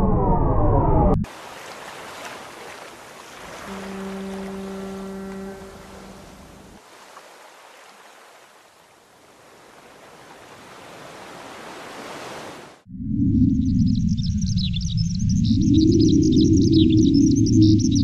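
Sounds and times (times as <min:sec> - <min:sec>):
held low tone: 0:03.7 - 0:06.6.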